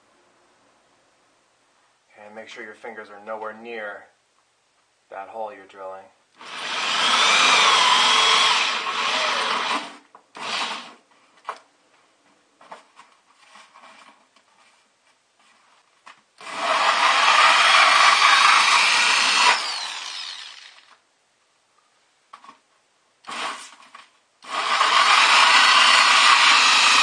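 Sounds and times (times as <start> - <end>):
drill spinning down: 6.4 - 11.0, 16.4 - 21.0, 23.2 - 23.8, 24.4 - 27.0
hole saw cutting plastic: 16.4 - 21.0, 24.4 - 27.0.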